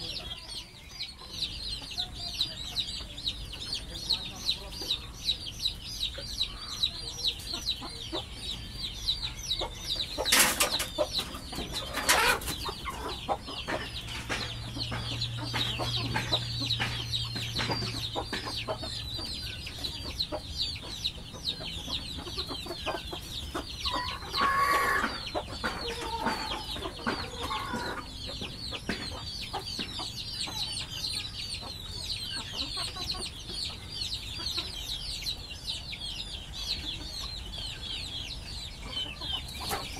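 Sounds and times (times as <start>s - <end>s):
chickens clucking: 0.0s - 39.9s
sharp knocks: 13.6s - 18.6s.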